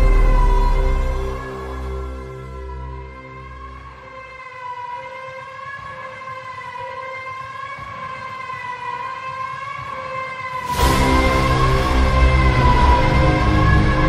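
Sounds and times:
wavering droning tone: 0.0s - 4.1s
loud music hit: 0.0s - 4.2s, 10.6s - 14.0s.

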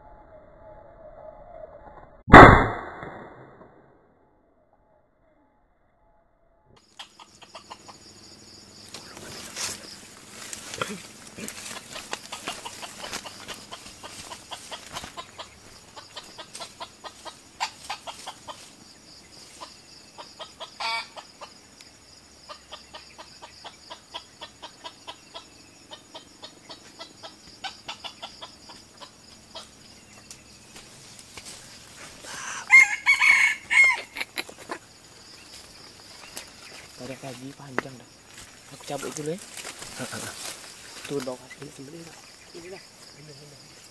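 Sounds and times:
insects droning: 4.5s - 43.9s
rooster crowing: 20.8s - 21.2s, 32.3s - 34.3s.

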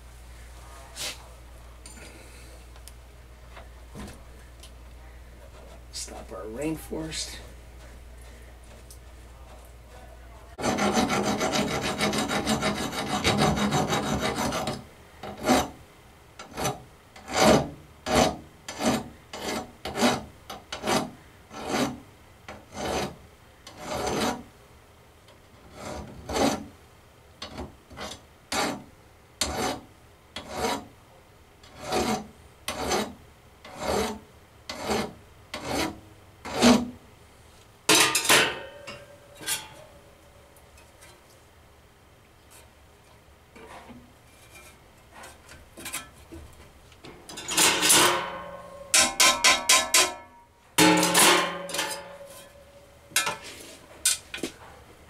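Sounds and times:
metal scrape: 37.9s - 40.0s, 43.6s - 46.5s, 47.3s - 54.8s.

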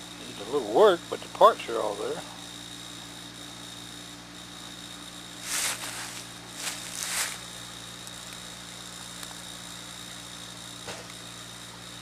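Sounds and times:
low mechanical hum: 0.0s - 12.0s
rustling in dry leaves: 5.4s - 7.7s.

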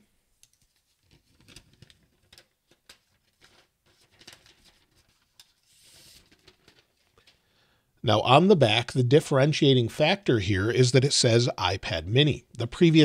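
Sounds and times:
plastic film crinkling and peeling: 0.5s - 7.3s.

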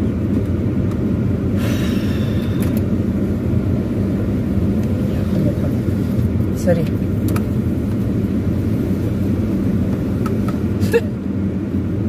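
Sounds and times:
air conditioning running: 0.0s - 12.0s
car engine idling: 0.0s - 12.0s.

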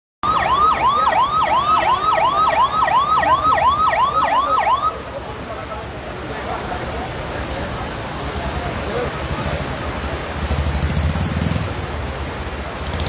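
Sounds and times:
electronic siren yelping: 0.2s - 5.0s.

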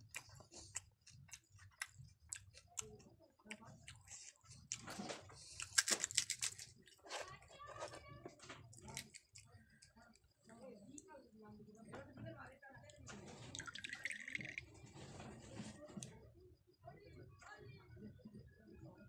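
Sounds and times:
crunchy food chewing: 0.0s - 11.1s.

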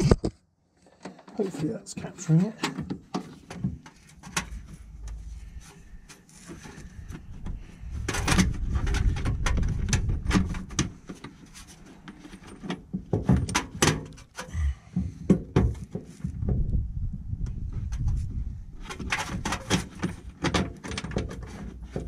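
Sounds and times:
metallic clicks and scraping: 7.9s - 14.5s, 17.9s - 22.0s.

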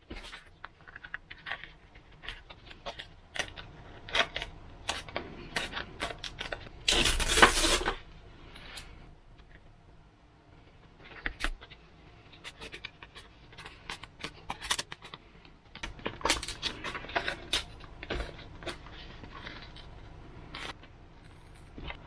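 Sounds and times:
foam parts clicking and tapping: 10.9s - 22.0s.

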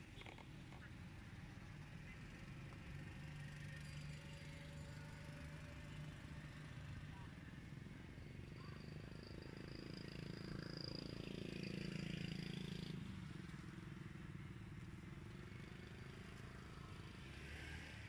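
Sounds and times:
vehicle engine passing: 16.3s - 18.0s.

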